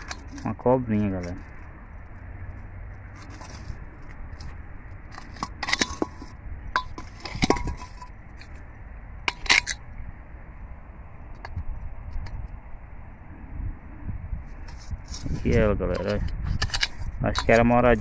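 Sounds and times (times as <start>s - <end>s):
clay bricks clinking: 4.4s - 8.6s, 15.9s - 18.0s.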